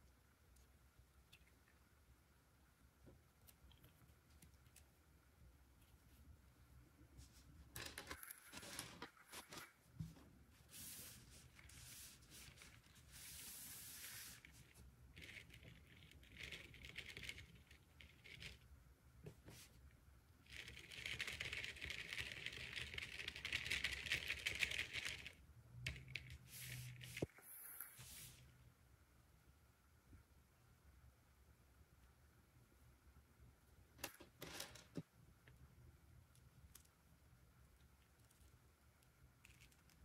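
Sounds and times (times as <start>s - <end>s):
crinkling and rustling: 7.2s - 19.8s.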